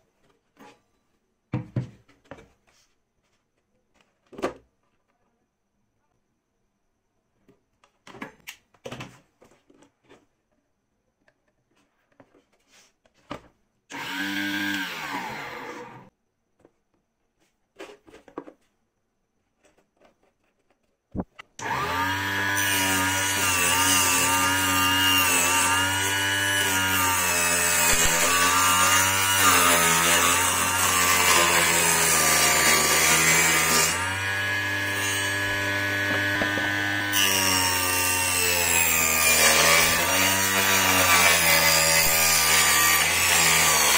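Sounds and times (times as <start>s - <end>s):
saw blade cutting plywood: 13.9s - 16.1s, 21.6s - 43.9s
small table saw running: 13.9s - 16.1s, 21.6s - 43.9s.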